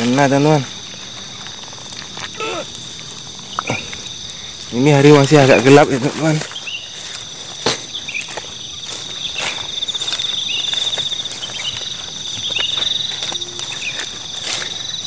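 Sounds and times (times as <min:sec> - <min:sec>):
footsteps in grass: 0:00.0 - 0:15.0
insects trilling: 0:00.0 - 0:15.0.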